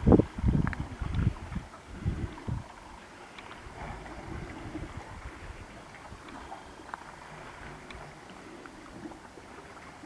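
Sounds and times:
water lapping against rocks: 0.0s - 10.0s
wind rumbling on microphone: 0.0s - 10.0s
faint clicks: 3.3s - 3.6s, 7.8s - 8.8s.

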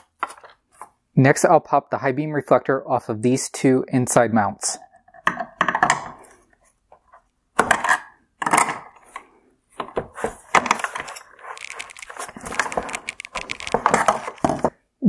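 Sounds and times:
plastic and metal clicking: 10.6s - 14.7s
sharp plastic cracks: 11.5s - 14.7s.

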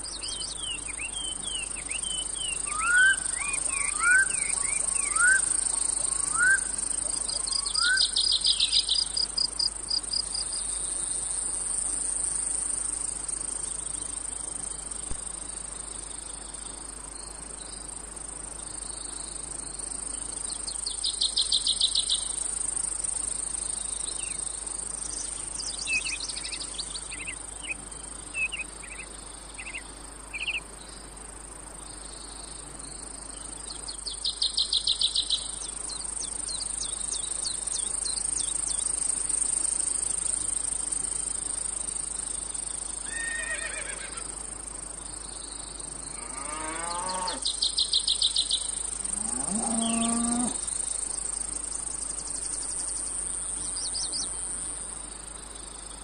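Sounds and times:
cicadas droning: 0.0s - 56.0s.

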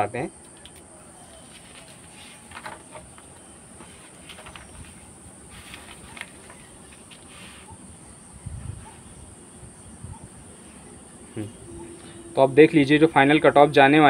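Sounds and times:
paper rustling: 1.2s - 7.7s.

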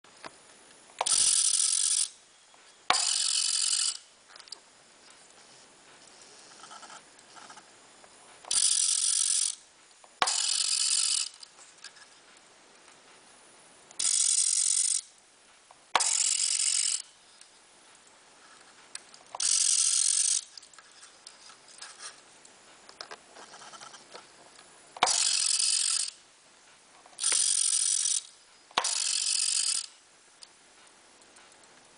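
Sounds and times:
small electric motor whining: 1.0s - 2.2s, 2.9s - 4.1s, 8.5s - 9.6s, 10.2s - 11.5s, 16.0s - 17.1s, 19.4s - 20.6s, 25.0s - 26.2s, 27.2s - 29.9s.

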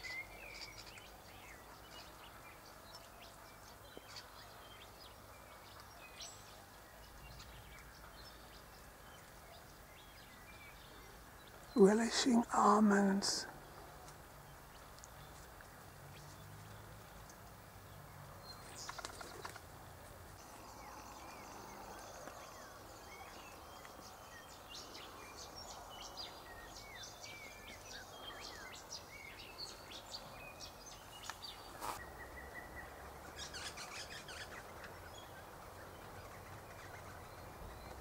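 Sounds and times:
steady background hiss: 0.0s - 16.6s
birds chirping: 3.9s - 15.4s, 20.4s - 38.0s.

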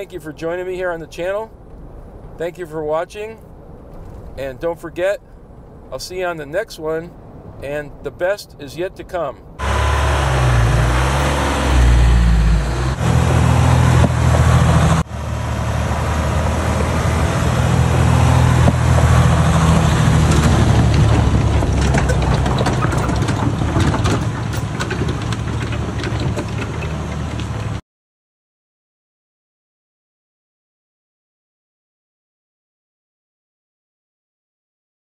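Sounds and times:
diesel engine running: 9.6s - 27.8s.

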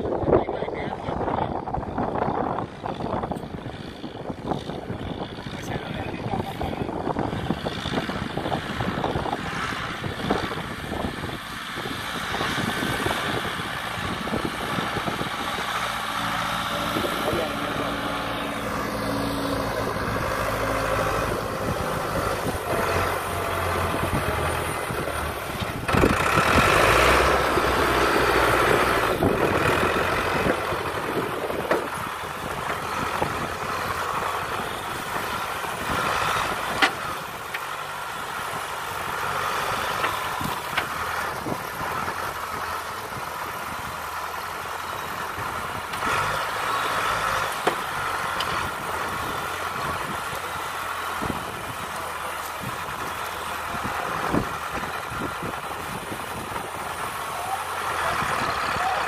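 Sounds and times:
diesel loader engine running: 0.0s - 59.0s.

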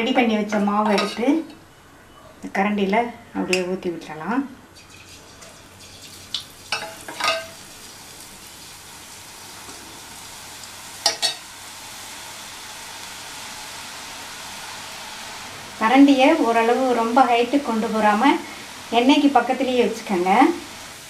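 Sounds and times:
batter sizzling in hot oil: 4.7s - 21.0s.

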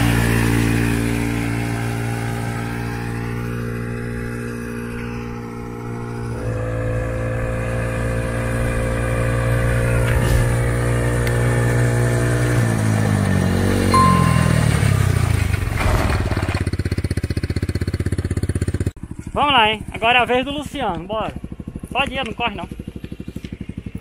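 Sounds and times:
small engine running: 0.0s - 14.4s, 15.0s - 24.0s
brief ding: 14.0s - 15.2s.

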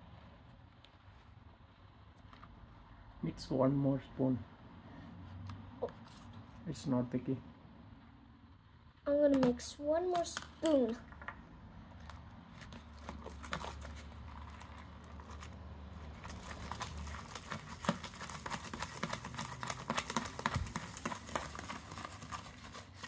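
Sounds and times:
stick stirring sticky slime: 11.9s - 23.0s.

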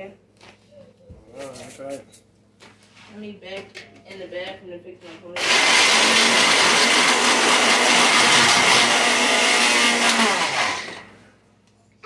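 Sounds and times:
blender grinding crackers: 5.4s - 11.2s.

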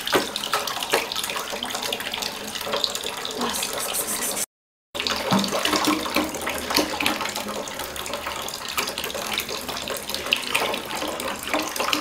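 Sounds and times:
tap water running into bowl: 0.0s - 4.4s, 5.0s - 12.0s
small splashes and knocks: 5.0s - 7.4s.

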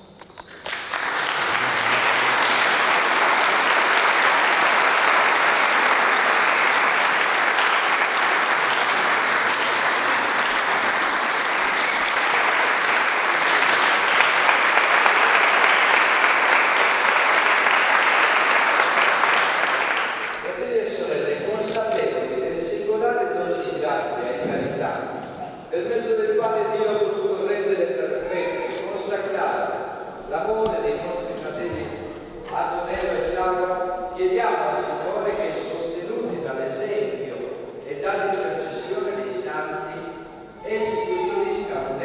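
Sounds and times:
crowd applauding: 0.0s - 20.8s.

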